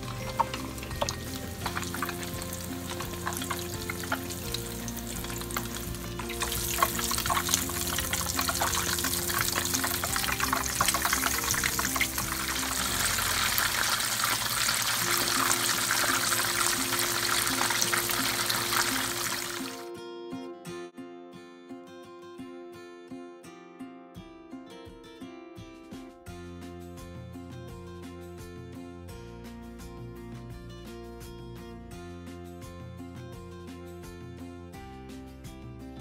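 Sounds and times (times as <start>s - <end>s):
food deep-frying in oil: 0.0s - 19.8s
background music: 0.0s - 23.0s, 24.0s - 36.0s.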